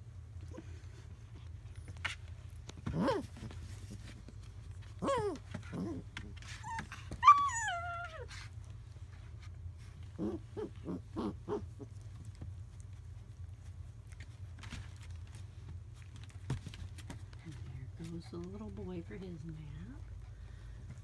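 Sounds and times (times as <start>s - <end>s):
steady low hum: 0.0s - 21.0s
puppy yelping: 5.0s - 8.3s, 10.2s - 12.0s.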